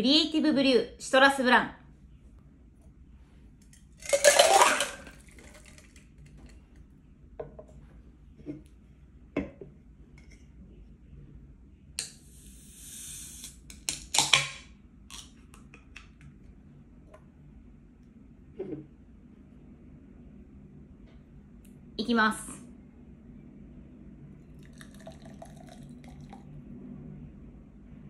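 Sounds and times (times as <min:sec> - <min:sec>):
beer can opening hiss: 0:12.0 - 0:13.8.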